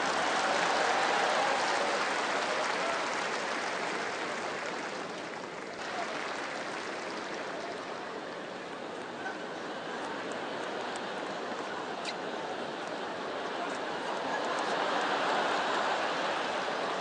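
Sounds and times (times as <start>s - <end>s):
crowd applauding: 0.0s - 8.4s, 14.1s - 17.0s.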